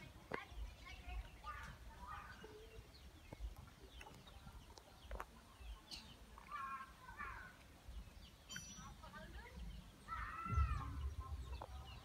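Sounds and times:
wind rumble on microphone: 9.6 - 12.0.

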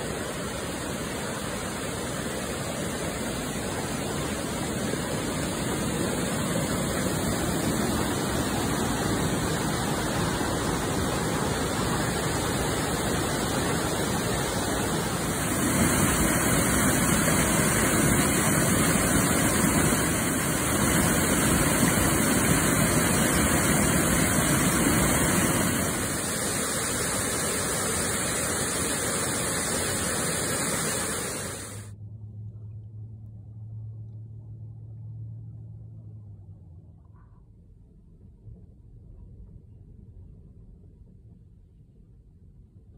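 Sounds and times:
waterfall rushing: 0.0 - 31.9.

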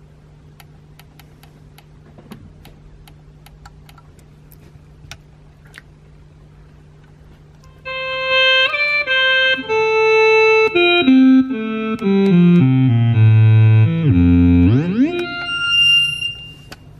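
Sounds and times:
electronic wind instrument notes: 7.8 - 16.9.

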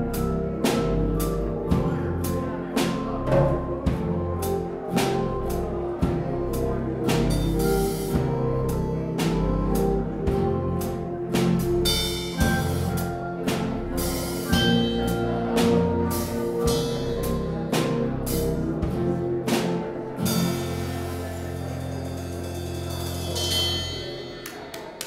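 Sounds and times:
church organ chords: 0.0 - 23.6.

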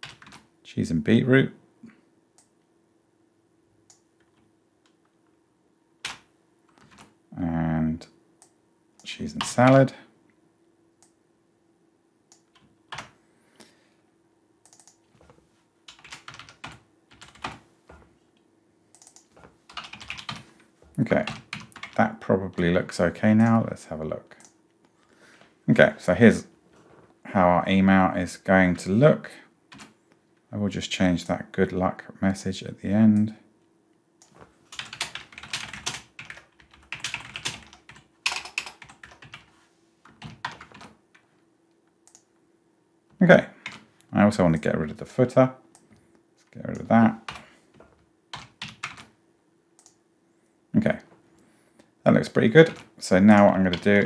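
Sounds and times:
computer keyboard typing: 0.0 - 0.5, 6.0 - 7.2, 12.3 - 13.2, 14.6 - 18.1, 18.9 - 22.8, 34.2 - 41.3, 43.6 - 43.9, 46.7 - 49.1, 52.5 - 54.0.

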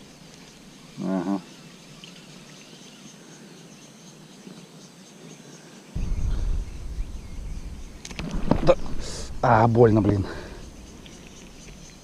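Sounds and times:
insects trilling: 0.0 - 12.0
low rumble on microphone: 6.0 - 12.0.

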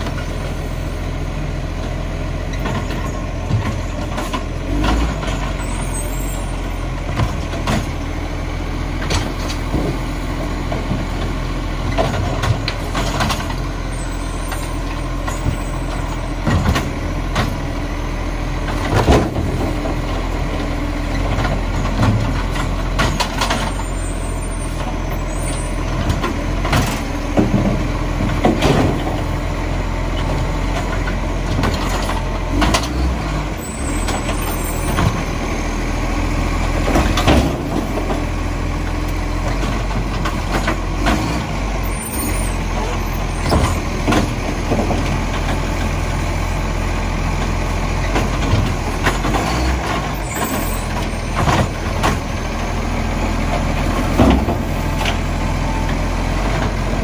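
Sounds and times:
garbage truck diesel drone: 0.0 - 57.0
hydraulic arm lifting bins: 1.8 - 57.0.

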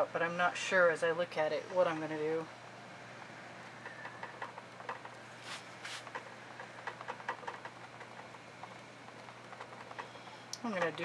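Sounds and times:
low steady hum: 0.0 - 11.0
scratchy swishes: 5.4 - 6.1.

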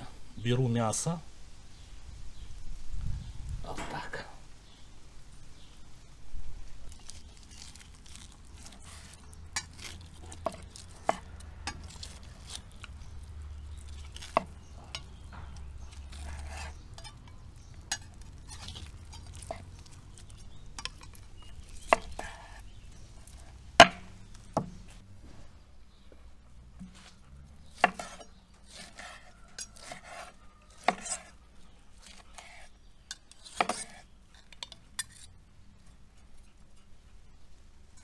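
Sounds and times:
knife slicing meat: 15.6 - 20.6, 21.7 - 23.6, 27.7 - 31.4.

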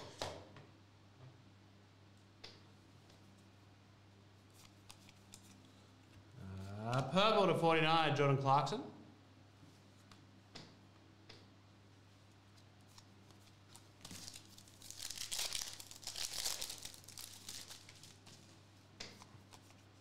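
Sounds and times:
foil wrapper crinkling: 13.0 - 18.4.

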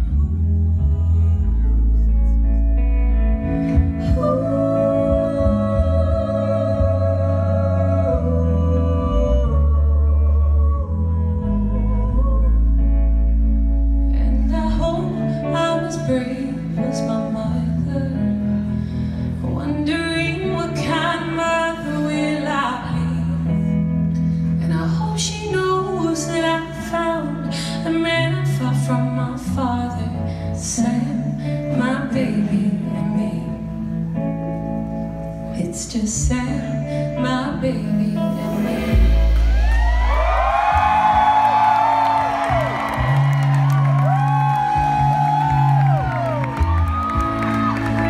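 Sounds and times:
deep sustained bass: 0.0 - 15.3, 38.2 - 41.6
woman singing with vibrato: 3.4 - 13.4, 14.2 - 18.7, 19.4 - 23.7, 24.6 - 34.1, 35.5 - 41.2.

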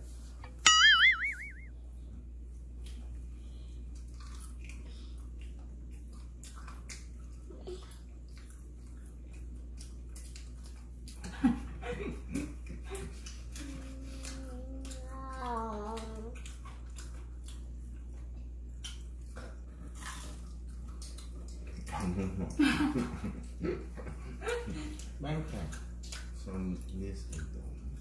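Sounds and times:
high wavering squeal: 0.6 - 1.7
people laughing: 11.3 - 13.1, 22.0 - 25.0.

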